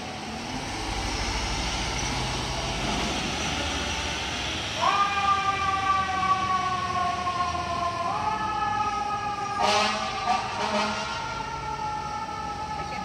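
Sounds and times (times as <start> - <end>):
fire truck siren wailing: 0.0 - 13.0
loud harsh horn blast: 9.6 - 11.2.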